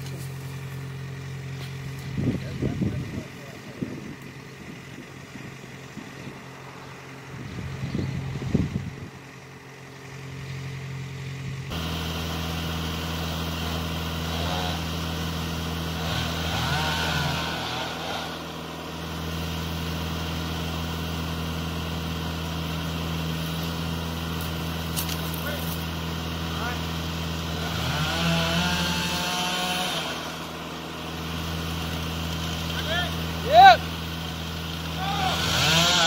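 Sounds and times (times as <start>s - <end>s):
engine idling: 0.0s - 36.0s.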